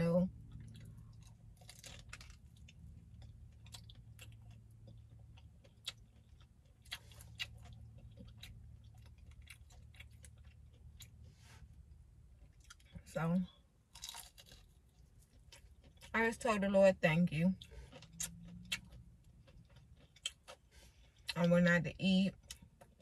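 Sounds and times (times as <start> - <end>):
steady low hum: 0.0 - 14.0
person chewing food: 0.4 - 13.0, 13.9 - 16.1, 17.6 - 21.4.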